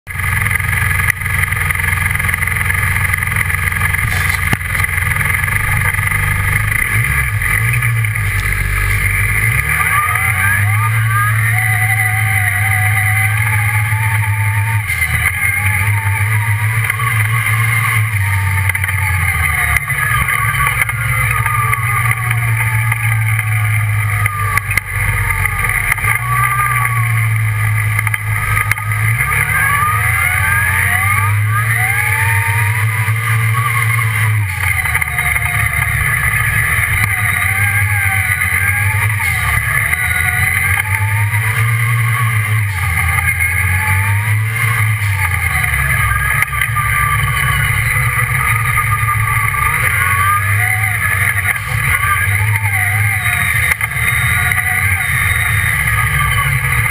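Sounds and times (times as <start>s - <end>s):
buggy engine revving: 0.0s - 56.9s.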